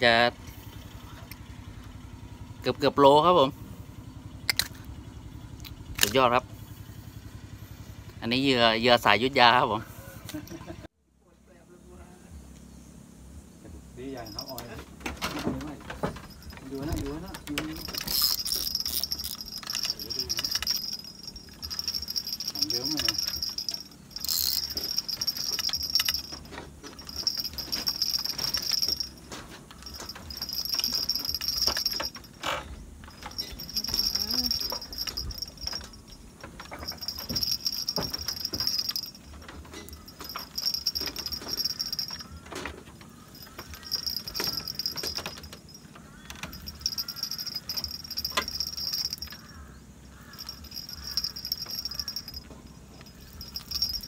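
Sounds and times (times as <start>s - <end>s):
insects buzzing in chorus: 12.1s - 54.0s
light clicks and knocks: 14.3s - 54.0s.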